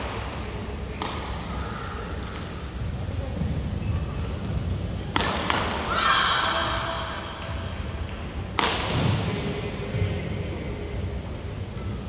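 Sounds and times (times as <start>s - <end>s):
low background murmur: 0.0s - 12.0s
racket smacking shuttlecock: 0.9s - 1.4s, 5.1s - 5.9s, 8.1s - 9.1s
court shoes squeaking: 3.3s - 5.6s, 11.5s - 12.0s.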